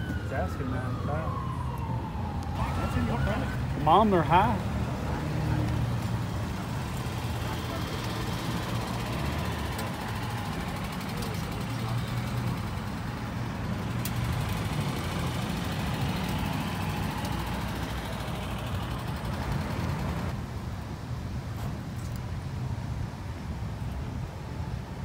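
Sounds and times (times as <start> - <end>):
vehicle engine idling: 6.3 - 20.4.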